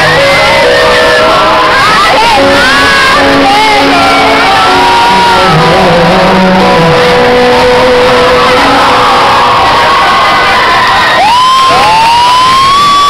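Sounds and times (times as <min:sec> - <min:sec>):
audience shouting: 0:00.0 - 0:13.0
live pop band music: 0:00.0 - 0:13.0.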